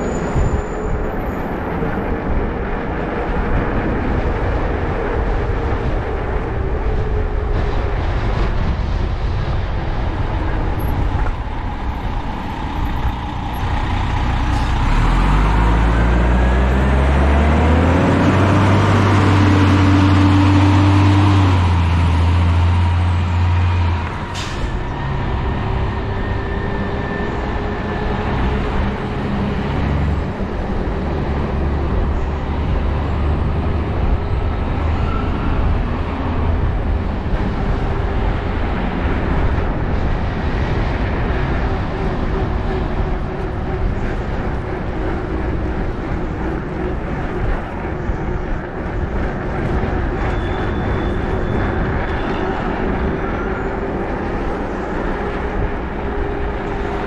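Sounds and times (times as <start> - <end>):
heavy vehicle engine accelerating: 0.0 - 57.0
wind and road rush: 0.0 - 57.0.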